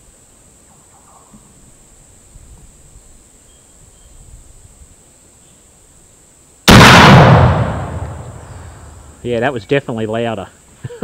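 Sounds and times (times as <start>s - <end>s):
rifle shot: 6.7s - 9.2s.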